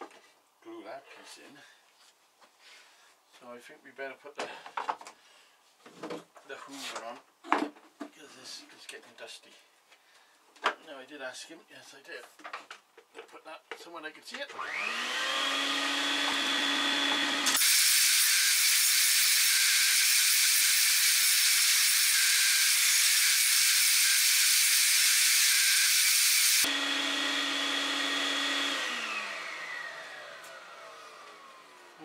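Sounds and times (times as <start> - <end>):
vacuum cleaner whine: 14.6 - 18.7, 25.5 - 32.0.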